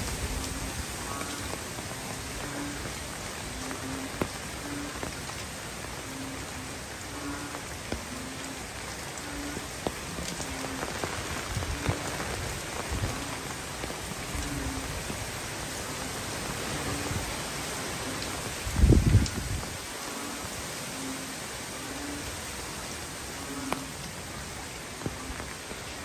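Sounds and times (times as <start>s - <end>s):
heavy rain on foliage: 0.0s - 26.0s
wind gusts buffeting microphone: 18.5s - 19.9s.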